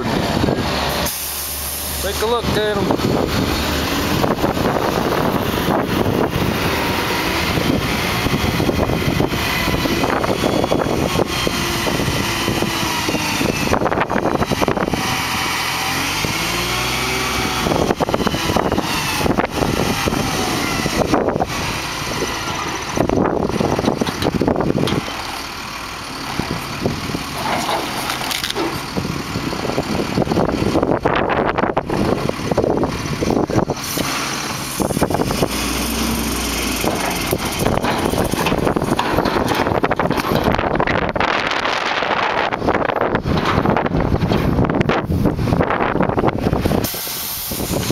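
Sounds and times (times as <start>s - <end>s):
truck diesel engine running: 0.0s - 47.9s
lumber sliding off truck bed: 15.8s - 29.1s, 33.5s - 42.5s.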